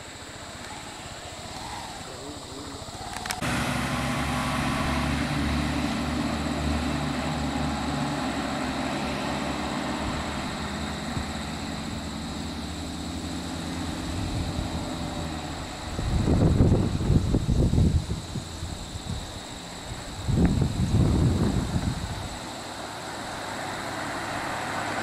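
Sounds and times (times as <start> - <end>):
vehicle engine idling: 0.0 - 25.0
sharp clicks: 3.1 - 3.4.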